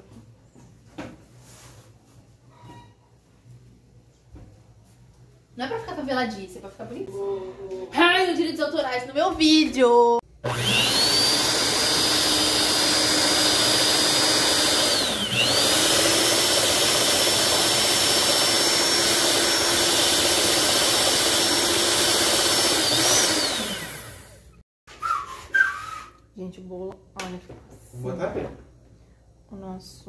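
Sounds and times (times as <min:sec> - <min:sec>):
electric stand mixer whine: 0:10.4 - 0:24.6.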